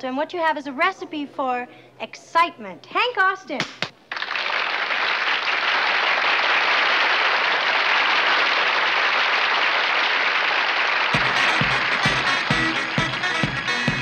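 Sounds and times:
audience applauding: 0:04.1 - 0:14.0
band with bass and drums: 0:11.2 - 0:14.0.

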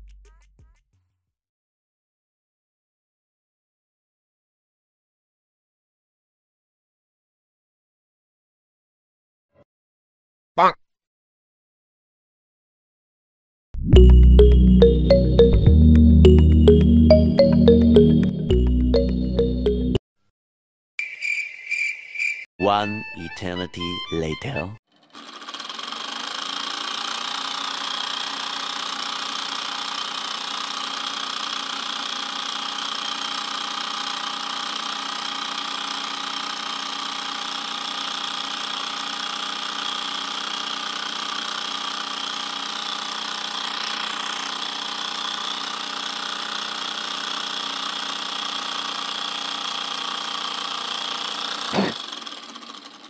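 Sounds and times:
steam engine rattle-buzz: 0:25.0 - 0:53.0.

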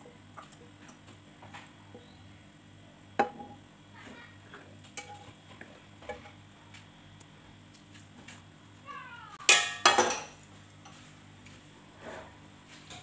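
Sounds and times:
cookware clattering on counter: 0:09.5 - 0:10.4
wooden spatula scraping pan: 0:12.0 - 0:12.4.

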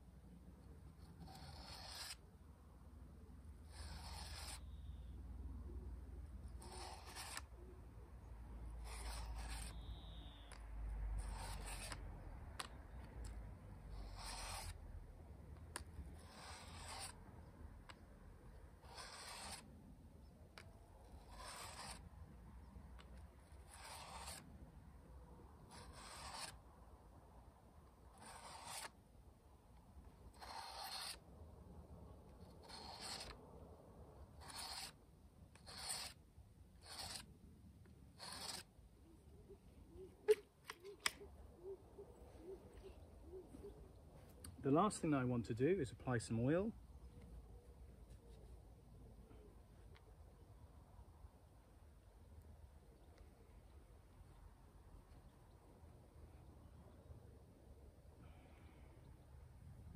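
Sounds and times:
blade rasping on sharpening card: 0:01.0 - 0:02.2, 0:03.6 - 0:05.1, 0:06.4 - 0:07.6, 0:08.7 - 0:10.6, 0:11.2 - 0:14.8, 0:15.7 - 0:19.7, 0:20.6 - 0:22.1, 0:23.0 - 0:24.5, 0:25.6 - 0:26.6, 0:28.1 - 0:29.0, 0:30.3 - 0:31.2, 0:32.4 - 0:33.4, 0:34.3 - 0:36.2, 0:36.8 - 0:37.3, 0:38.2 - 0:38.7.

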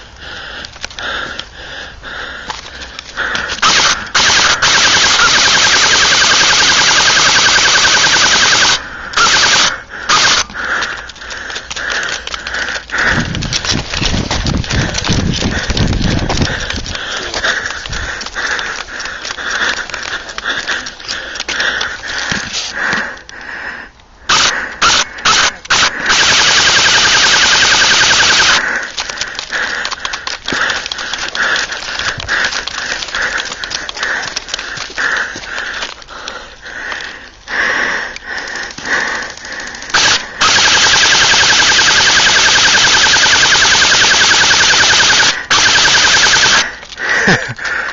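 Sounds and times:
light clicks and rustling: 0:00.0 - 0:01.6, 0:02.4 - 0:03.6, 0:10.7 - 0:24.2, 0:28.6 - 0:37.5
airsoft rifle firing bursts: 0:03.6 - 0:10.6, 0:24.3 - 0:28.7, 0:39.8 - 0:46.8.

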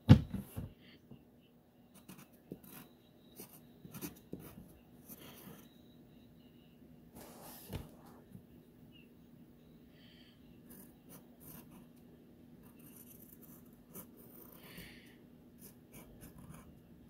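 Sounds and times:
pencil scratching on paper: 0:10.7 - 0:11.9, 0:12.6 - 0:14.7.

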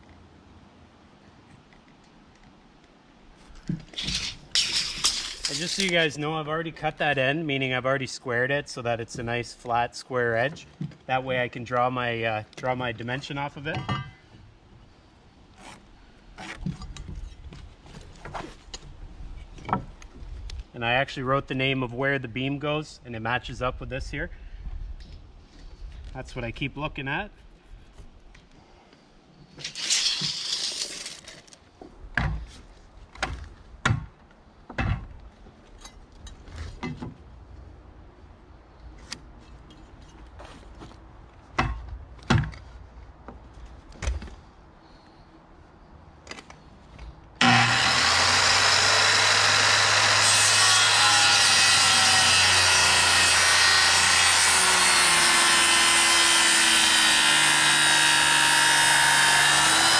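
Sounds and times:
circular saw cutting wood: 0:47.4 - 0:59.9.

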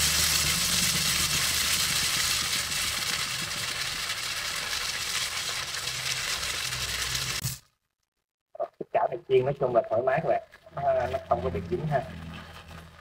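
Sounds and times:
fish sizzling in hot oil: 0:00.0 - 0:07.7, 0:10.5 - 0:13.0
low hum: 0:10.8 - 0:13.0.

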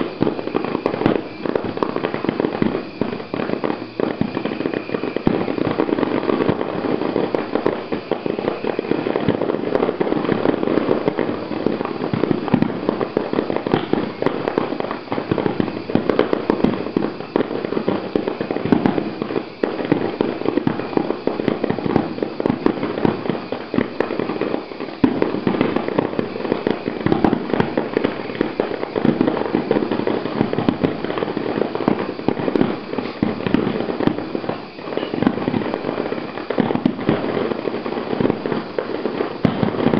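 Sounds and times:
fireworks bursting: 0:00.0 - 0:39.9.

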